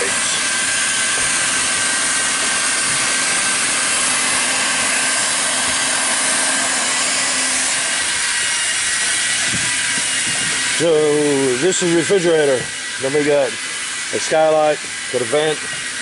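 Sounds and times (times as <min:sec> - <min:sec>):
faint motor whine: 0:00.0 - 0:16.0
hot air welder hissing: 0:00.0 - 0:16.0.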